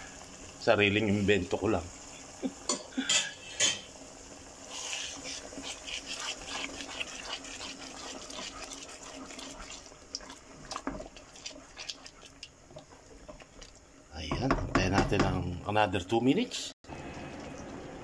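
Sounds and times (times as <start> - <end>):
risotto simmering and bubbling: 0.0 - 15.7
wooden spoon stirring: 4.7 - 15.4.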